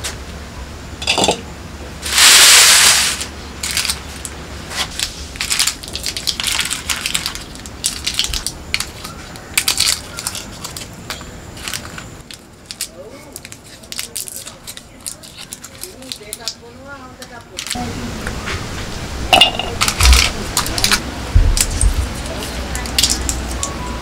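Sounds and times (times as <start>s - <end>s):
loud rustling rush: 2.0s - 9.0s
dry seed skins crackling: 2.1s - 17.8s, 19.7s - 21.0s, 21.6s - 23.8s.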